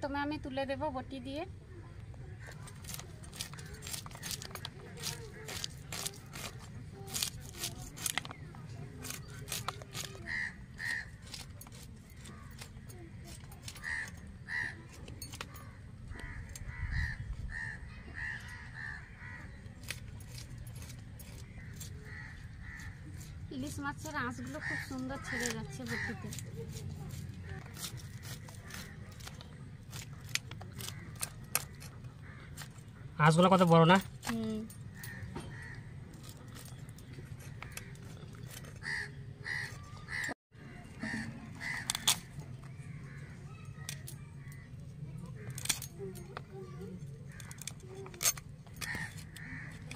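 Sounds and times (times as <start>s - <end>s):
knife scraping fish scales: 2.6s - 13.9s, 24.4s - 32.7s
crow cawing: 10.0s - 11.4s, 13.7s - 14.9s, 15.5s - 19.7s, 21.4s - 23.2s, 24.4s - 26.4s, 30.1s - 32.8s, 34.9s - 36.8s, 38.8s - 44.7s, 48.7s - 49.9s.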